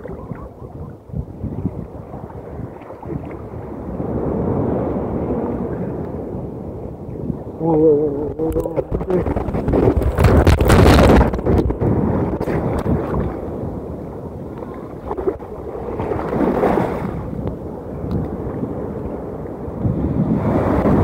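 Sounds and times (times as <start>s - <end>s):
sea water rushing and sloshing: 0.0s - 21.0s
wind buffeting microphone: 0.0s - 21.0s.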